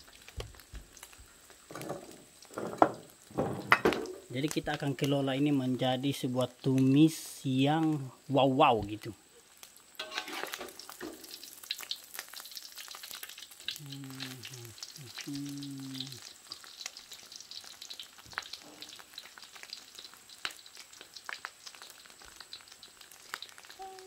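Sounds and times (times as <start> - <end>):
egg frying in oil: 0.0 - 24.0
metal spatula scraping wok: 10.0 - 11.2.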